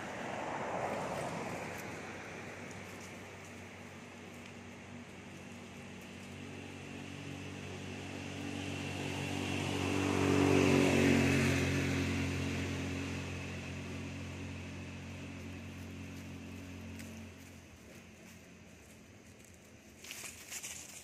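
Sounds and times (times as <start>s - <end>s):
vehicle engine driving past: 0.0s - 21.0s.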